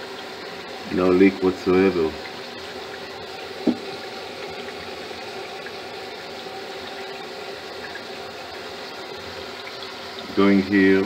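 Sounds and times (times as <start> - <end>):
water draining through pipe: 0.0 - 11.0.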